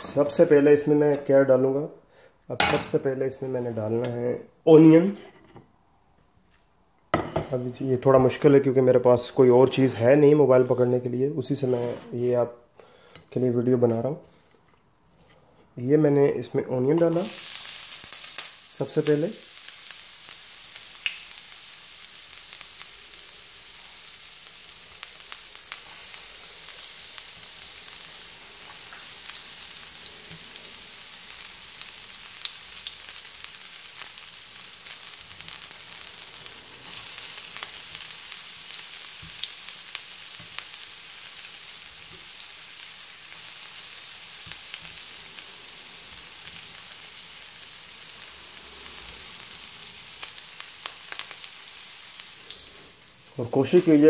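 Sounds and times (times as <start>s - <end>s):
onions sizzling in a frying pan: 0.0s - 0.8s, 17.0s - 54.0s.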